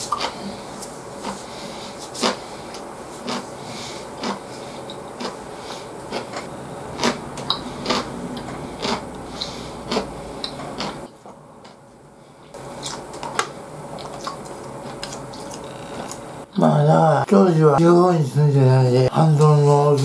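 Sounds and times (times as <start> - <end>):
man chewing: 0.0 - 11.9, 12.5 - 16.3.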